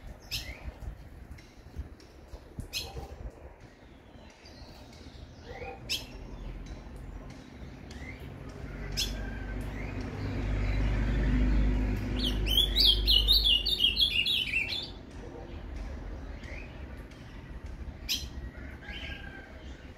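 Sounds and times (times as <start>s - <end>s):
bird chirping: 9.8s - 17.3s
bird song phrase: 10.2s - 16.8s.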